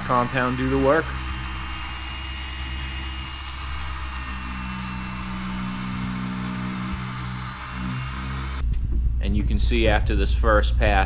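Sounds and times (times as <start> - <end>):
polisher motor hum: 0.0 - 8.6.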